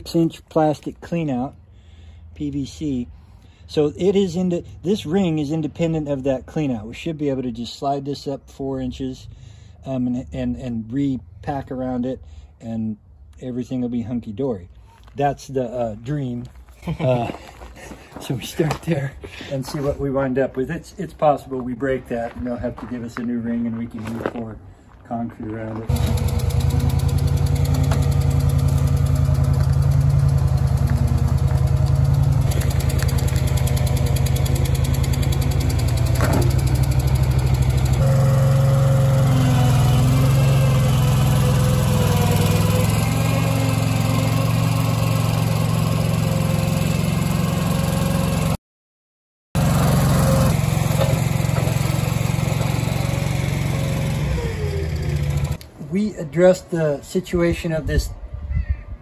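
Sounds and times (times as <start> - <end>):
loader engine running: 25.8 - 48.6, 49.6 - 55.7.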